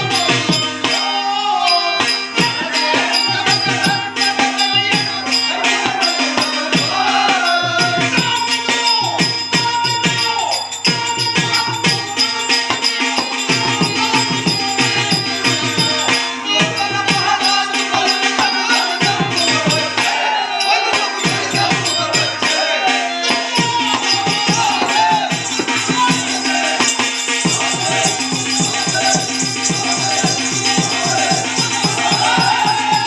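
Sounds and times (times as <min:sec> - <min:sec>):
tabla drumming: 0:00.0 - 0:33.0
jingling rattle: 0:24.0 - 0:33.0.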